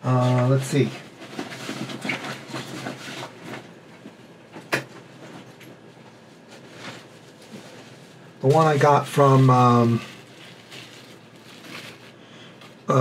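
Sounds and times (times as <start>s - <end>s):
rummaging among hard objects: 0.2s - 4.2s, 5.0s - 12.8s.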